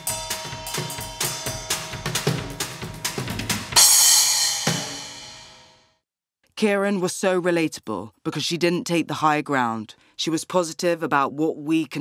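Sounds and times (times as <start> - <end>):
drum kit played with sticks: 0.0 - 5.8
loud cymbal crash: 0.0 - 5.9.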